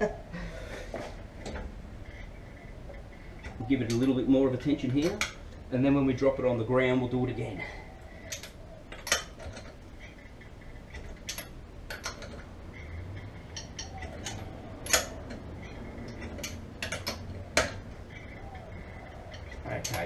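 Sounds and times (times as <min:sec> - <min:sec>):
socket wrench clicking: 0:08.3 - 0:09.7.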